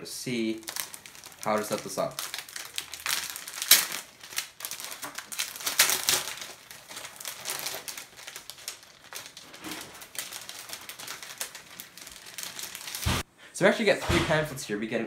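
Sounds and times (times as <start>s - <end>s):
plastic sleeve crinkling: 0.0s - 13.2s.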